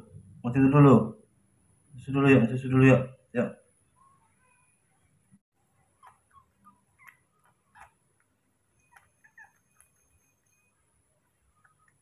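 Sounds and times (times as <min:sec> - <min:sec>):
baby monkey squeaking: 0:05.9 - 0:08.0, 0:08.8 - 0:10.6.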